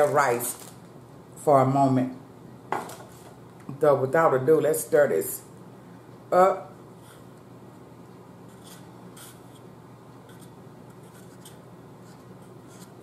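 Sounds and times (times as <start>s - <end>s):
spoon scraping bowl: 8.5s - 9.7s.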